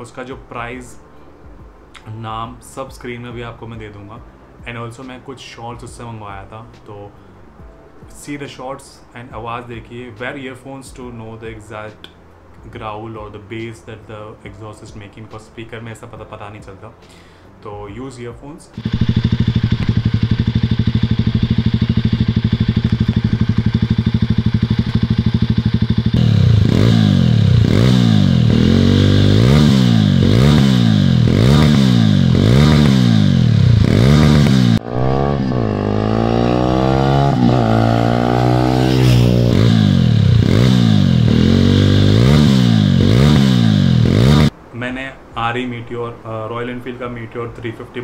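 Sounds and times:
motorcycle engine revving: 18.8s - 44.6s.

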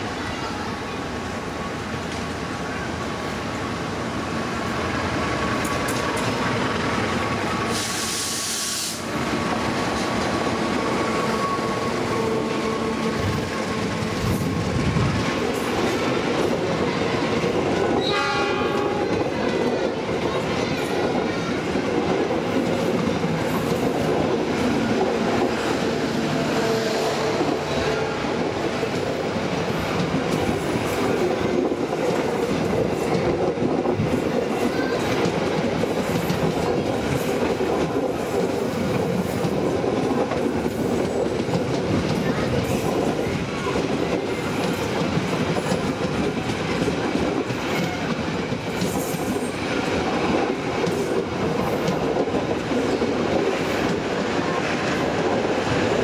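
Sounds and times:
train wheels rolling on rails: 0.0s - 56.0s
train horn: 18.0s - 19.2s, 26.2s - 28.3s.

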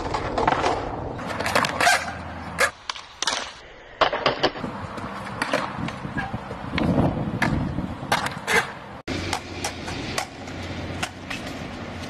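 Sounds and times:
skateboard clacks: 0.0s - 12.0s
skateboard wheels rolling: 0.0s - 12.0s.

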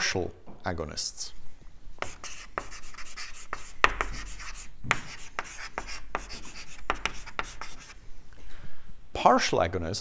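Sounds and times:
chalk scratching on a chalkboard: 2.0s - 8.0s.

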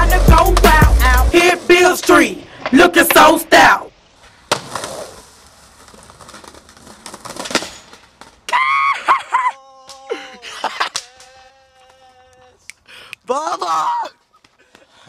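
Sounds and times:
skateboard wheels rolling: 0.0s - 9.2s
skateboard landing clack: 4.4s - 5.2s, 5.8s - 8.6s.

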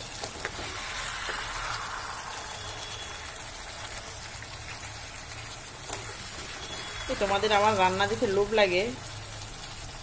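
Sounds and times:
chicken sizzling in masala: 0.0s - 10.0s.

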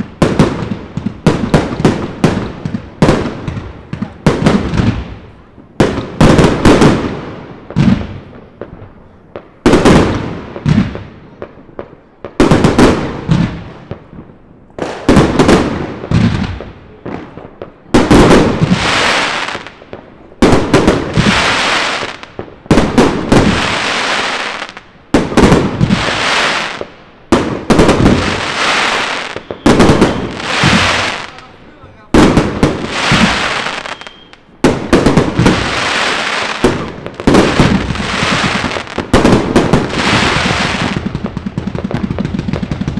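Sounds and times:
fireworks bangs: 0.0s - 42.9s
fireworks crackling hiss: 14.7s - 42.9s.

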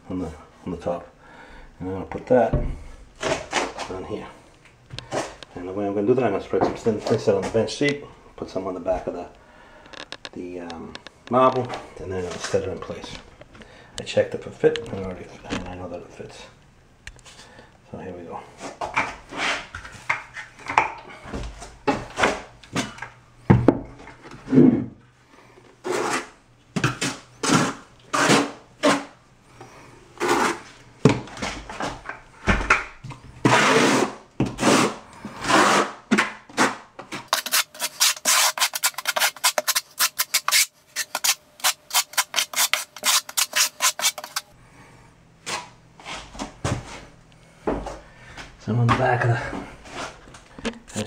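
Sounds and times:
trowel scraping mortar: 25.8s - 26.4s, 27.0s - 29.1s, 30.2s - 30.7s, 33.5s - 36.0s, 36.6s - 44.5s.

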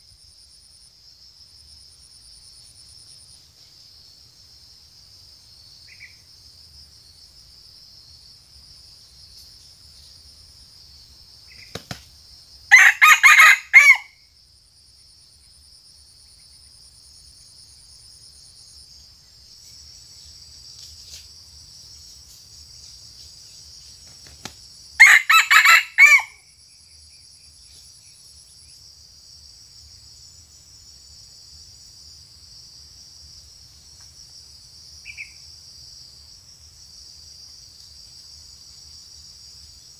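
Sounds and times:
rooster crowing: 12.7s - 14.2s, 25.0s - 26.4s.

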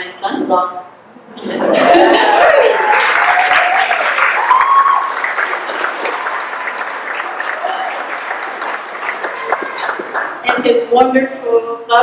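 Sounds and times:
guests applauding: 2.0s - 10.5s
voices calling out: 7.4s - 10.4s.

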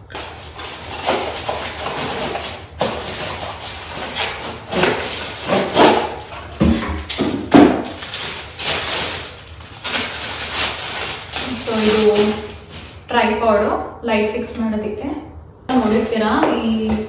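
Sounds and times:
plastic wrapping crinkling: 0.0s - 13.1s.

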